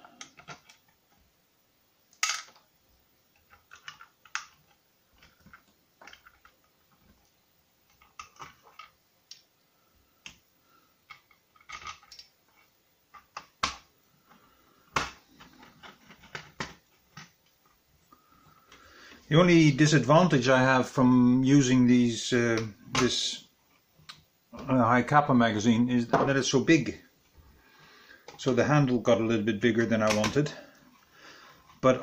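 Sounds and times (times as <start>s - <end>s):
small screws and plastic parts clicking: 0.1s - 1.0s, 3.3s - 9.5s, 11.0s - 13.9s.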